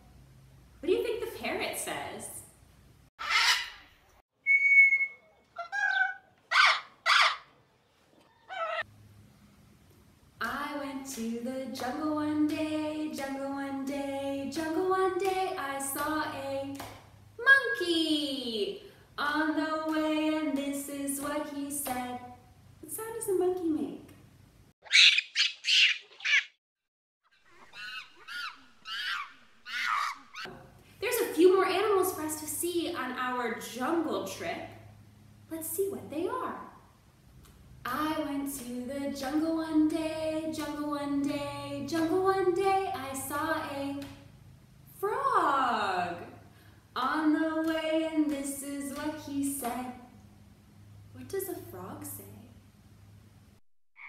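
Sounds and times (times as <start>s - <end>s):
monkey shrieks: 3.2s - 3.9s, 4.5s - 7.5s, 8.4s - 8.8s, 24.8s - 26.6s, 27.4s - 30.5s
parrot squawks: 3.2s - 7.6s, 8.3s - 8.8s, 24.8s - 26.6s, 27.4s - 30.5s.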